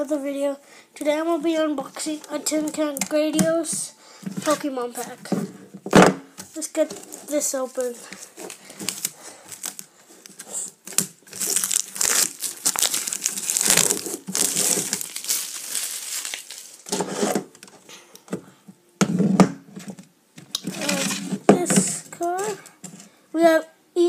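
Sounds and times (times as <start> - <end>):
plastic wrap crinkling: 7.0 - 17.1.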